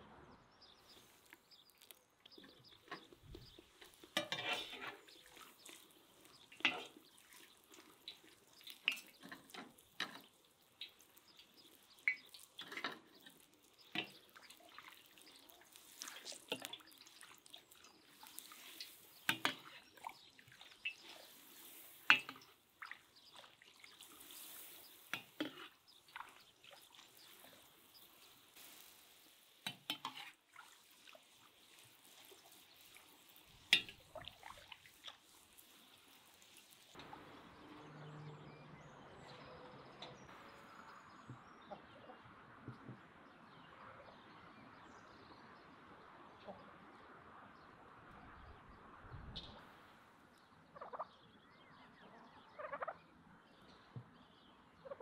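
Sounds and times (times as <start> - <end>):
oil sizzling: 0.8 - 37.4
oil splashing and dripping: 0.9 - 37.3.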